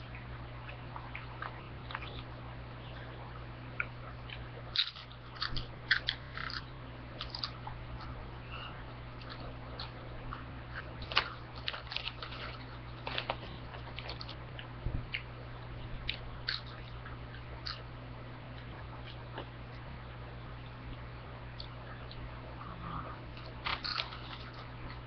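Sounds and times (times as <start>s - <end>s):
steady low hum: 0.0s - 25.0s
crunchy chips being chewed: 3.8s - 8.2s, 9.2s - 15.3s, 16.0s - 17.8s, 23.3s - 25.0s.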